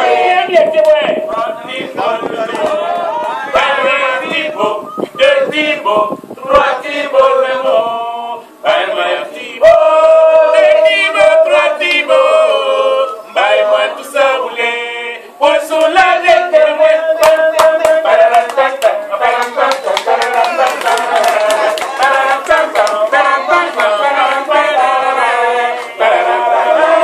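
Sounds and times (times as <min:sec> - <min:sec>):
group singing unaccompanied: 0:00.0 - 0:27.0.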